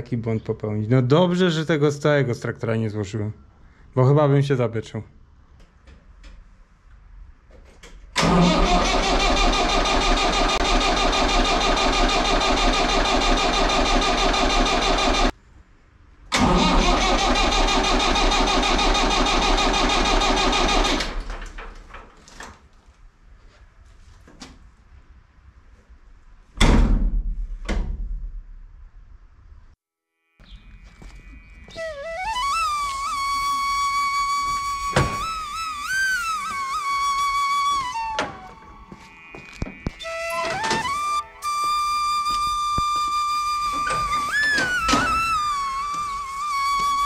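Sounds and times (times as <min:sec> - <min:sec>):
diesel engine cranking on starter: 0:08.2 - 0:15.3, 0:16.3 - 0:22.0, 0:40.1 - 0:47.0.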